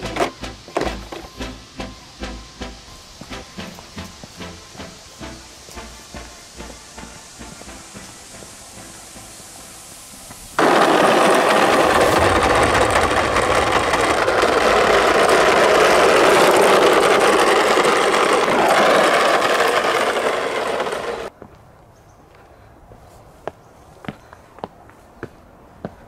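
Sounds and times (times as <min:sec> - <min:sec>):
plastic wheels rattling on brick: 0:00.0 - 0:01.5, 0:10.6 - 0:21.3.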